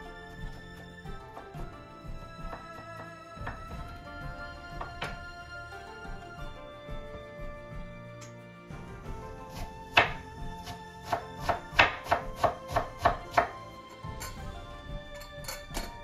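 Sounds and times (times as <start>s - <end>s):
background music: 0.0s - 16.0s
knife chopping on wooden board: 9.5s - 13.6s.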